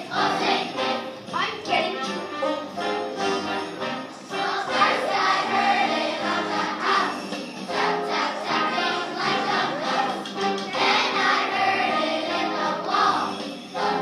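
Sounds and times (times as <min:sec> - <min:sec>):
children's choir singing: 0:00.0 - 0:14.0
musical accompaniment: 0:00.0 - 0:14.0
small bells jingling: 0:06.0 - 0:09.0, 0:12.8 - 0:14.0.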